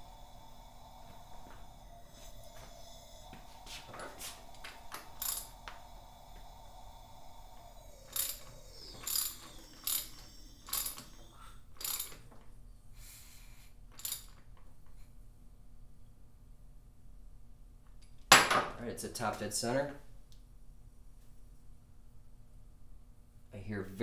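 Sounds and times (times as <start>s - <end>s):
faint steady whine: 0.0s - 24.0s
ratchet wrench clicking: 5.1s - 5.5s, 8.1s - 12.2s.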